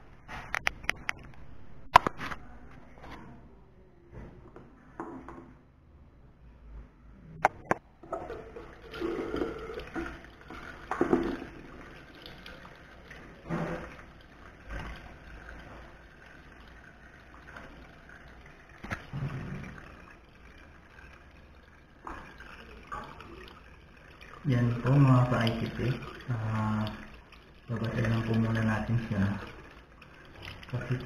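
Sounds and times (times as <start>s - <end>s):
tap water splashing into sink: 7.4s - 31.0s.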